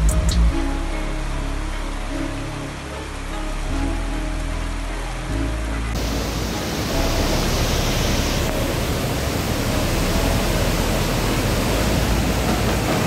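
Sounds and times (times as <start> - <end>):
floodwater rushing: 1.2 - 13.0.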